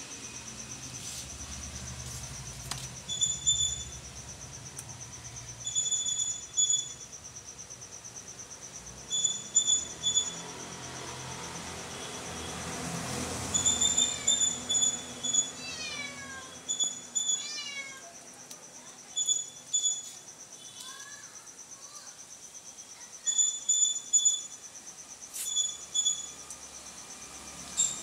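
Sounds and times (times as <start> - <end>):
high insect trill: 0.0 - 28.0
sharp high chirps: 0.2 - 4.4, 5.6 - 7.2, 9.0 - 12.7, 13.4 - 17.6, 19.0 - 22.1, 22.7 - 28.0.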